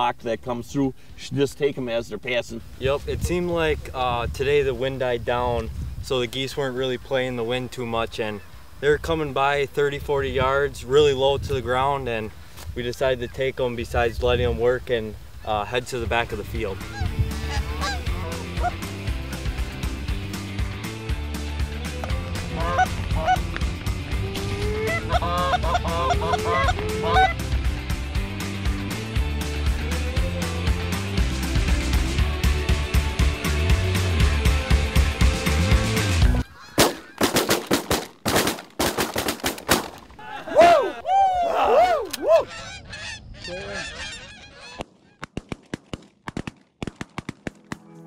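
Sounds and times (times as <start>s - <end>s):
geese honking: 16.6s - 19.0s, 21.9s - 27.5s, 36.2s - 37.3s, 42.2s - 45.2s.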